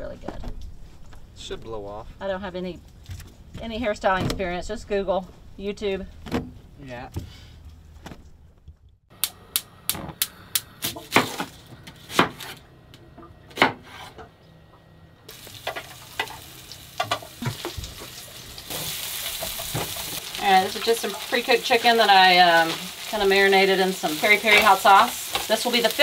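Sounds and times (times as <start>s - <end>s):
chicken sizzling in a frying pan: 15.3s - 26.0s.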